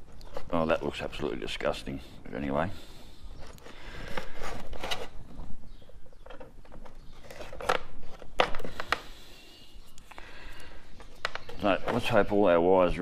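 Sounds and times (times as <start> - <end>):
wires and tape crackling: 3.3 - 13.0.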